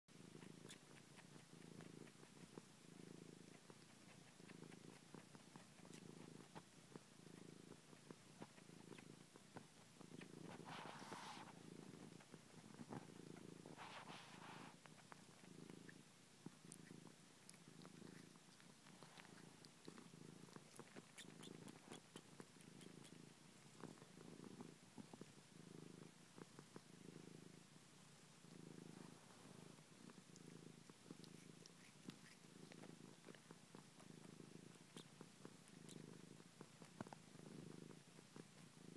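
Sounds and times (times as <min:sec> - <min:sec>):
cat purring softly: 0:00.1 - 0:38.9
faint wet sucking clicks: 0:16.7 - 0:23.2.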